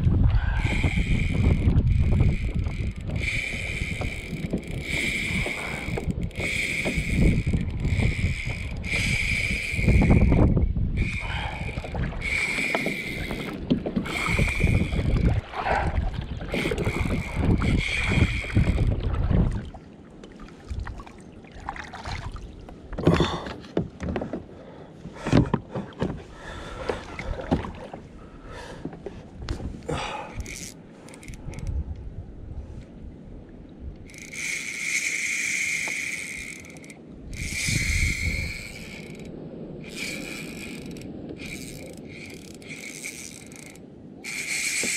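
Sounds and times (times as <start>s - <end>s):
low rumble of kayak and water: 0.0s - 44.9s
fishing reel drag buzzing: 0.5s - 15.4s, 16.5s - 19.0s, 30.1s - 31.8s, 34.0s - 44.9s.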